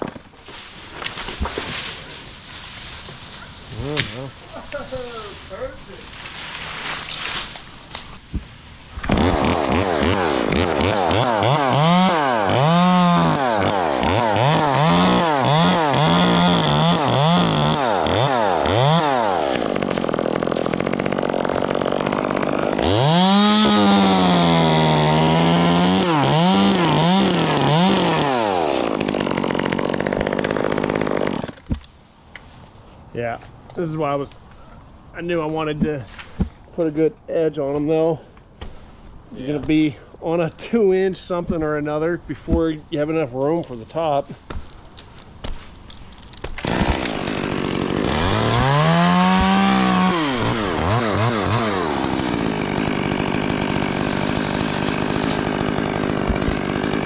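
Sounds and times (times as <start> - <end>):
chainsaw revving and cutting wood: 9.0 - 31.6, 46.5 - 57.0.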